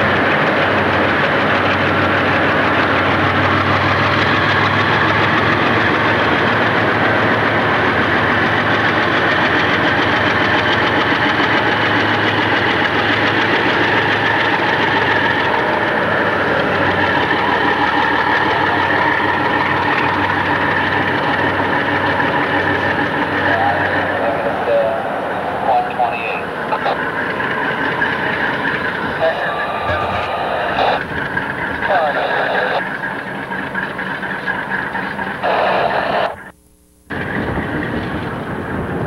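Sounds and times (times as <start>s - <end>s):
diesel locomotive engines humming: 0.0s - 39.0s.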